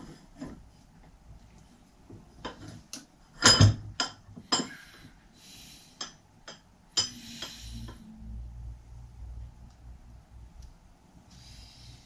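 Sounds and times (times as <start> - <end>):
metal tools clinking on workbench: 3.4 - 4.7.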